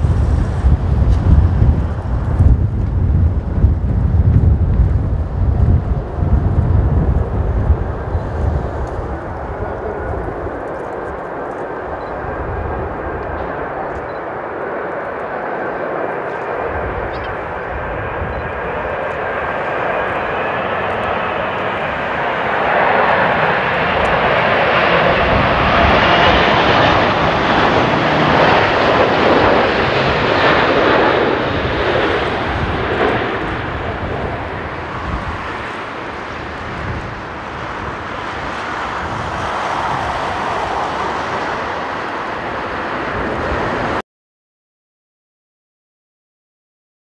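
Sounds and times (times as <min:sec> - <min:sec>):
wind rumble on microphone: 0:00.0 - 0:14.2, 0:16.1 - 0:44.0
jet engines roaring: 0:00.0 - 0:44.0.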